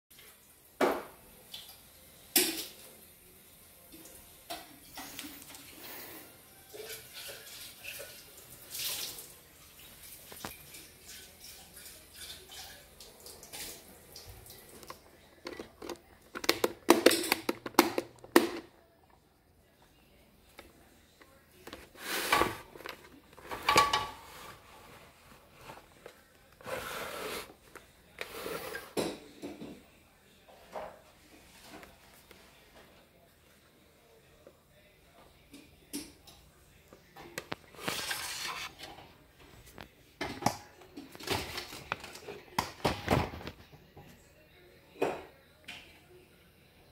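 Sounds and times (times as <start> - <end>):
rubbing and scraping on plastic: 21.6 - 28.9, 37.7 - 38.9.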